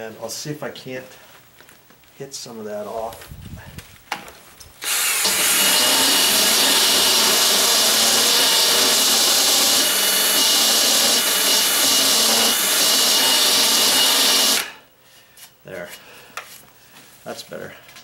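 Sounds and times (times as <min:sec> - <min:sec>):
cordless drill grinding metal: 0:04.8 - 0:14.9.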